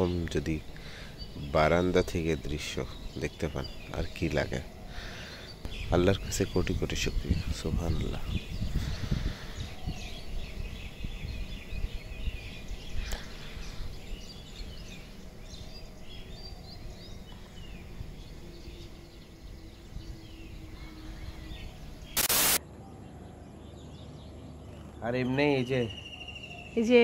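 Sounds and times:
small birds chirping: 0:00.0 - 0:27.0
loud burst of noise: 0:22.2 - 0:22.6.

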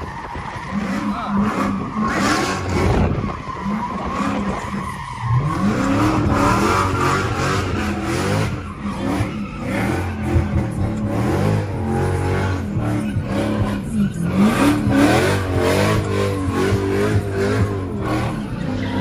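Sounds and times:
car engine revving: 0:00.0 - 0:19.0
tires squealing: 0:00.0 - 0:19.0.

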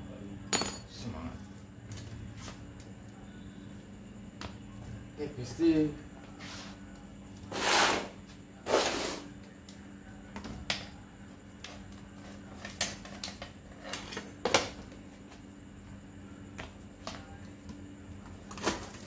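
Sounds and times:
scraping on concrete floor: 0:07.4 - 0:09.3.

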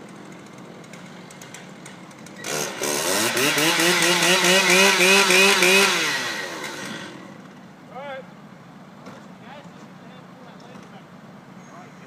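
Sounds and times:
chainsaw idling and revving: 0:00.0 - 0:07.7.

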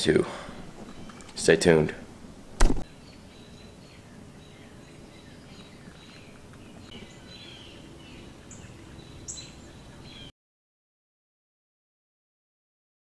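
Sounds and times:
small birds chirping: 0:00.1 - 0:02.0, 0:02.8 - 0:10.3.

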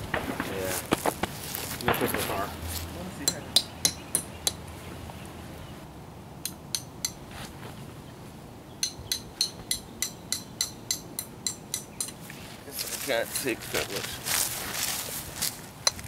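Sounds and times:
metal tent stake tapping: 0:06.4 - 0:07.2, 0:08.8 - 0:12.3.

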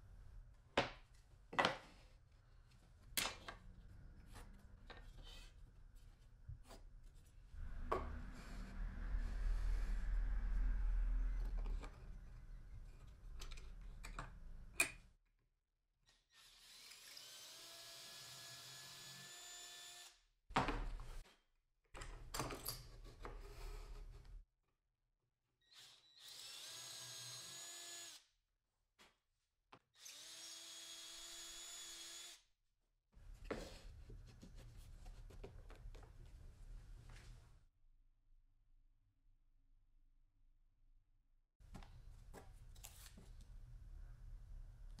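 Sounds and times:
electric drill boring into wood: 0:16.3 - 0:20.2, 0:25.7 - 0:28.2, 0:30.0 - 0:32.4.

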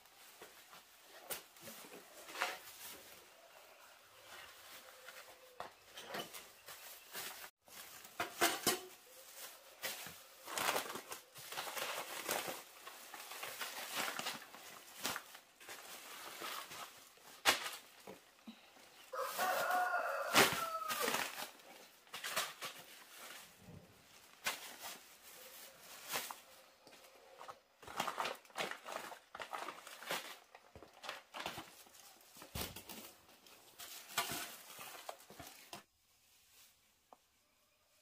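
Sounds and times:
plastic bags crinkling: 0:06.2 - 0:35.9
rooster crowing: 0:19.1 - 0:21.3.

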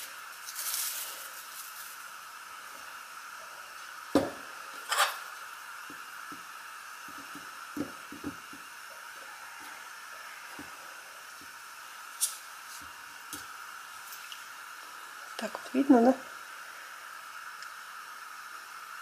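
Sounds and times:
cling film crinkling: 0:00.0 - 0:02.2.

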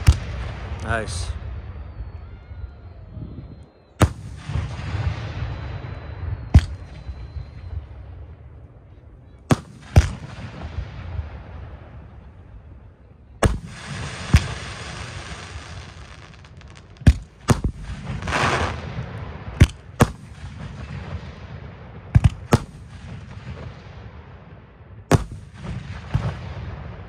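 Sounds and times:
firework bangs: 0:00.0 - 0:02.0, 0:04.0 - 0:08.5, 0:09.5 - 0:12.5, 0:13.4 - 0:24.4, 0:25.0 - 0:27.0
firework hissing: 0:13.6 - 0:17.0, 0:17.9 - 0:18.9.

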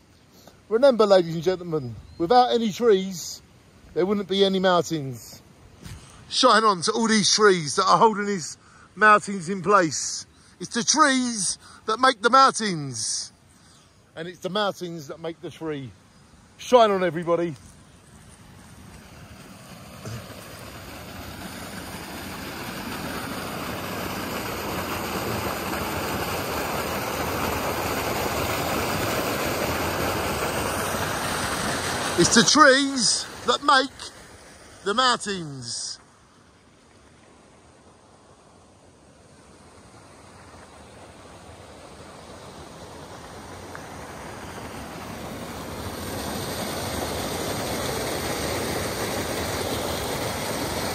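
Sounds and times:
waterfall rushing and splashing: 0:18.1 - 0:35.9, 0:39.6 - 0:50.9.

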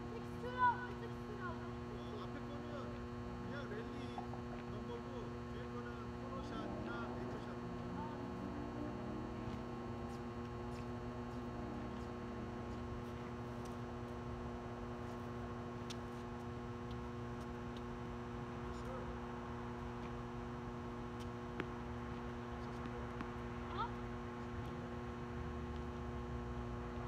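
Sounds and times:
electrical hum: 0:00.0 - 0:27.0.

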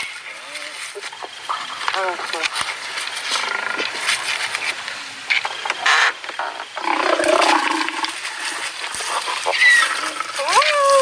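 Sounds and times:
animals snarling and growling: 0:06.8 - 0:10.7.

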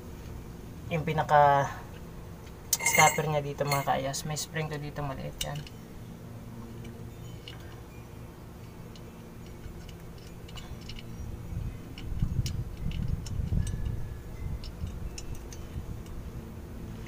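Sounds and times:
small metallic clicks and taps: 0:06.6 - 0:07.8, 0:08.6 - 0:11.3, 0:11.9 - 0:14.0, 0:14.6 - 0:16.2.

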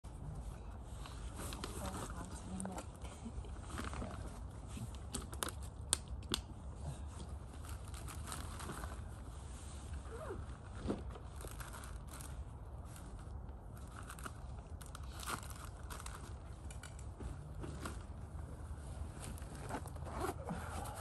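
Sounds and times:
plastic bag crinkling: 0:07.6 - 0:09.1, 0:11.2 - 0:17.0.

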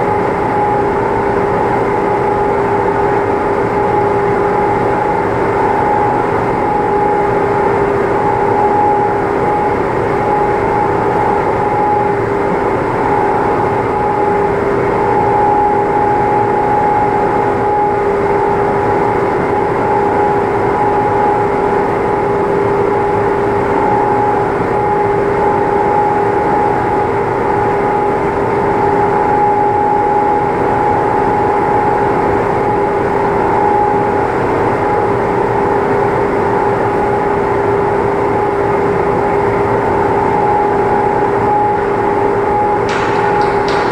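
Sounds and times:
steady machine drone: 0:00.0 - 0:43.9.

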